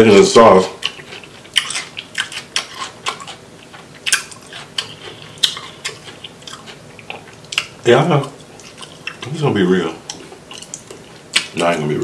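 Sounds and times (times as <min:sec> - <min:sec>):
crawfish shells cracking: 0:10.0 - 0:11.6.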